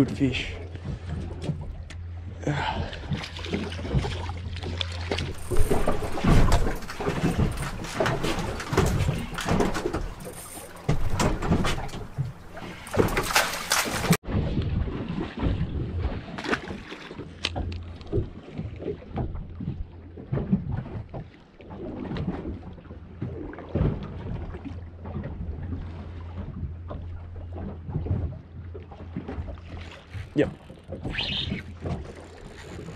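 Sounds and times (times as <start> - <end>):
water splashing against boat: 0.0 - 32.9
fish splashing at surface: 3.5 - 14.2.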